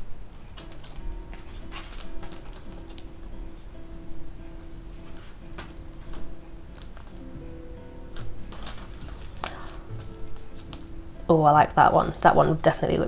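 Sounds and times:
faint background music: 0:00.0 - 0:13.0
paper cards rustling: 0:00.3 - 0:07.2, 0:08.1 - 0:11.0
cards tapping together: 0:00.4 - 0:03.2, 0:08.2 - 0:10.9.

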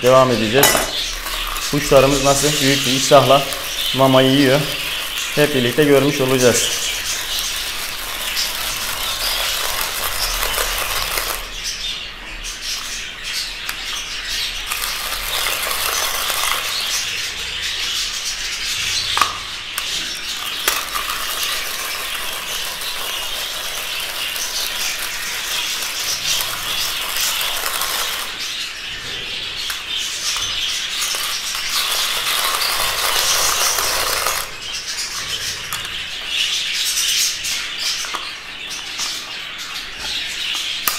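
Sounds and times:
budgerigars chattering: 0:00.0 - 0:40.9
rotary grater scraping: 0:00.6 - 0:11.7, 0:12.6 - 0:17.3, 0:19.8 - 0:36.4.

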